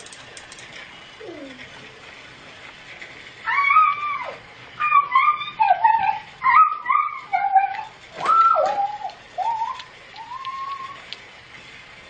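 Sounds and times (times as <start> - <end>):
high-pitched whining vocal sounds: 1.2 - 1.8, 3.5 - 11.0.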